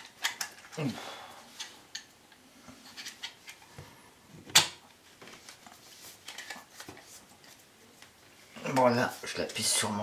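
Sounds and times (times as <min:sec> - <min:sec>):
small clicks and rubbing of parts: 0:00.0 - 0:00.8, 0:01.5 - 0:03.7, 0:05.3 - 0:09.7.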